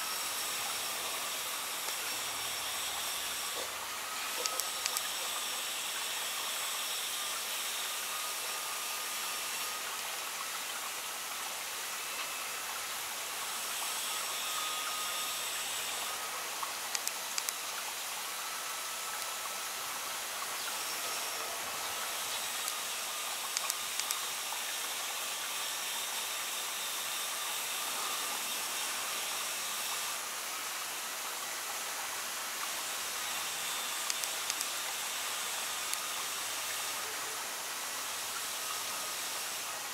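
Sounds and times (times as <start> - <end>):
high-pitched outdoor hiss: 0.0 - 39.9
soft clicks: 16.9 - 17.6, 23.5 - 24.2.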